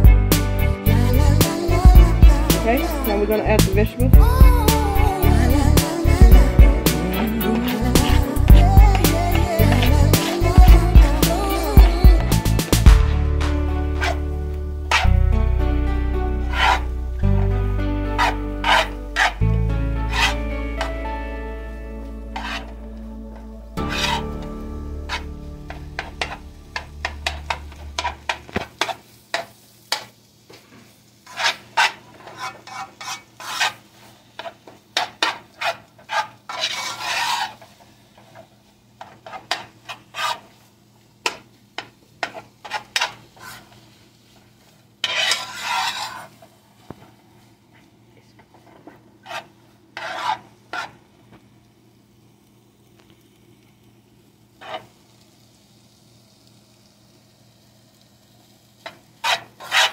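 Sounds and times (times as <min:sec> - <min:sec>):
metal spatula scraping frying pan: 0:06.8 - 0:10.9, 0:13.9 - 0:14.2, 0:14.9 - 0:15.1, 0:16.4 - 0:19.4, 0:20.0 - 0:21.0, 0:22.3 - 0:22.8, 0:23.8 - 0:30.1, 0:31.2 - 0:33.8, 0:34.4 - 0:38.4, 0:39.0 - 0:40.6, 0:42.2 - 0:43.8, 0:45.0 - 0:46.4, 0:49.2 - 0:51.0, 0:54.6 - 0:54.9, 0:58.8 - 0:59.9.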